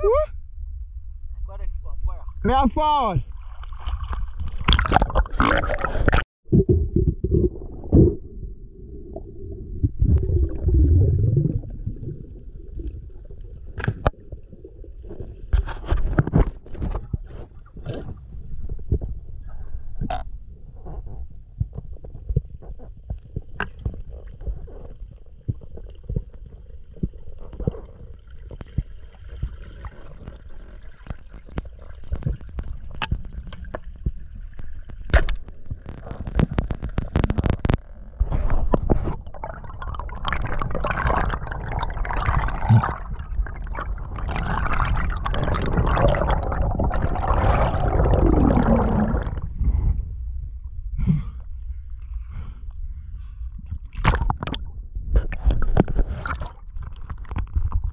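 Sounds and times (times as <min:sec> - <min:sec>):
low underwater rumble: 0:00.0 - 0:02.4, 0:03.2 - 0:57.9
water rushing and bubbling: 0:03.2 - 0:20.3, 0:21.8 - 0:50.3, 0:53.8 - 0:57.9
underwater clicks and knocks: 0:31.0 - 0:41.4, 0:53.7 - 0:57.9.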